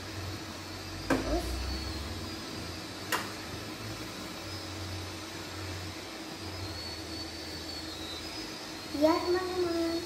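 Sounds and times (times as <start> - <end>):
steady hum and hiss: 0.0 - 10.0.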